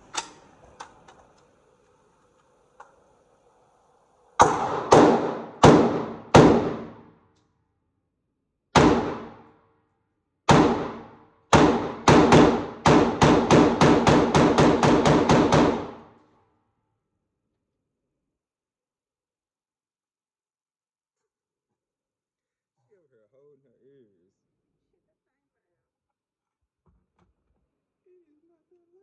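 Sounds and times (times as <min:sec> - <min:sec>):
gunshots: 0:04.4 - 0:07.2, 0:08.8 - 0:09.5, 0:10.5 - 0:16.1.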